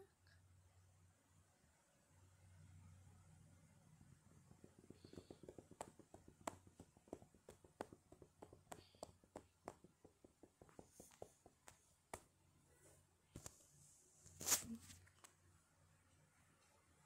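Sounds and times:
faint irregular clicks: 0:04.0 - 0:12.3.

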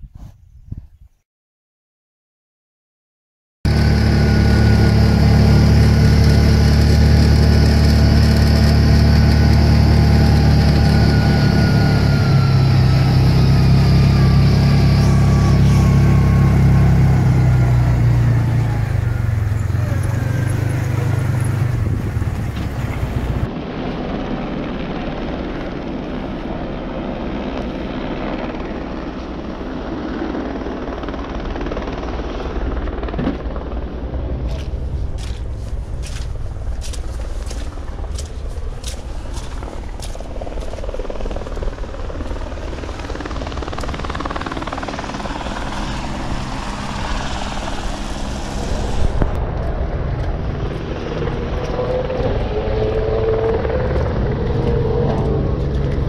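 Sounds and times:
outboard motor running: 0:03.7 - 0:23.5
crackling wind or water noise: 0:20.1 - 0:29.4, 0:33.7 - 0:56.0.

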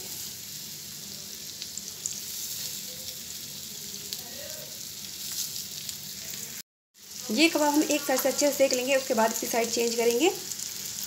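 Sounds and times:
patties sizzling in oil: 0:00.0 - 0:11.0.

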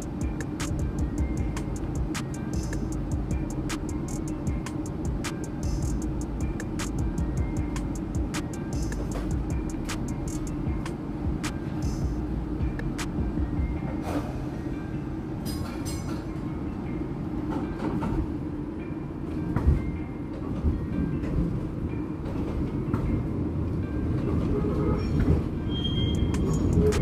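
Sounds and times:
streetcar running gear rumble: 0:00.0 - 0:27.0
high wheel squeal: 0:24.5 - 0:27.0.

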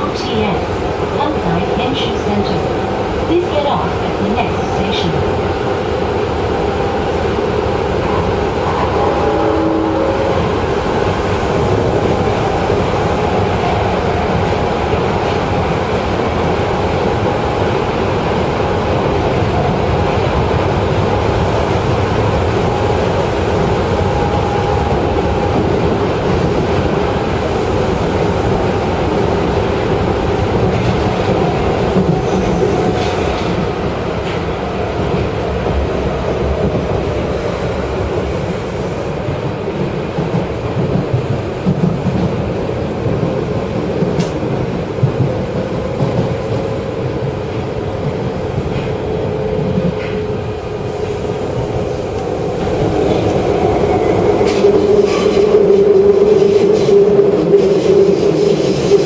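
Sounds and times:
train wheel and rail rumble: 0:00.0 - 0:59.0.

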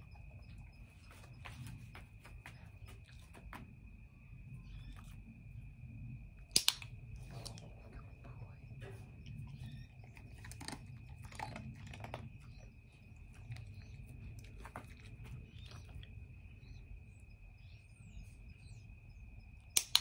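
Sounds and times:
dog chewing and crunching treats: 0:00.0 - 0:03.9, 0:06.4 - 0:16.9
faint bird chirps: 0:04.1 - 0:05.6, 0:07.4 - 0:19.8.

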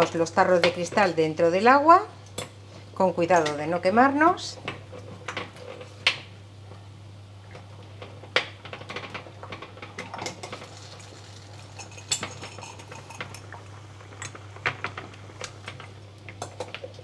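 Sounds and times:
boiling water bubbling: 0:00.0 - 0:17.0.

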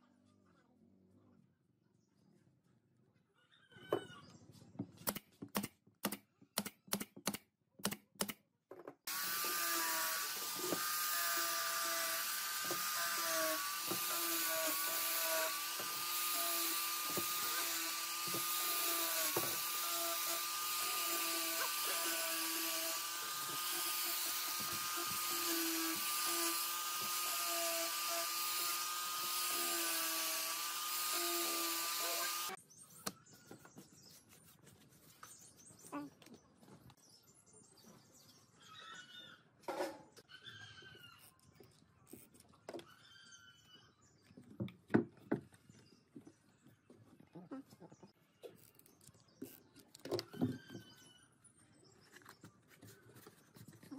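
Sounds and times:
angle grinder whining: 0:09.1 - 0:32.6.

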